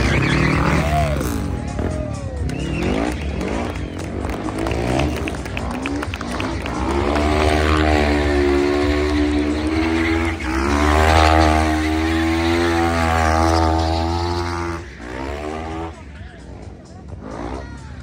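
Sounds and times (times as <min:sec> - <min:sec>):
quad bike engine at high revs: 0:02.6 - 0:16.0.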